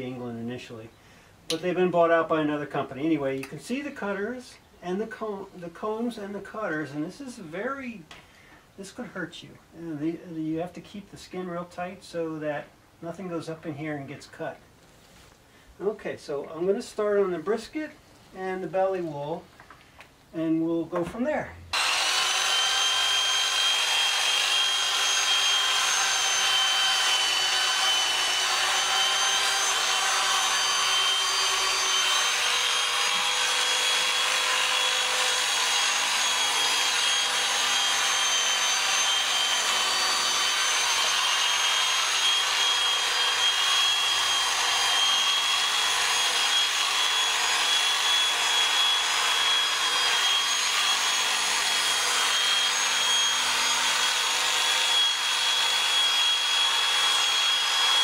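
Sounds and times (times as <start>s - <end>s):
electric shearing handpiece whining: 21.7s - 58.0s.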